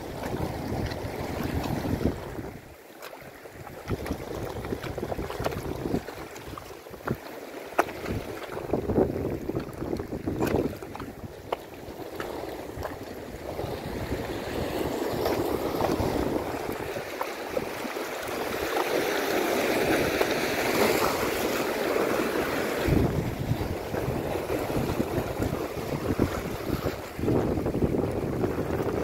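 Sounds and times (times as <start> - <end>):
wind buffeting the microphone: 0.0 - 2.8, 3.5 - 7.2, 7.8 - 29.0
waves breaking over rocks: 0.0 - 29.0.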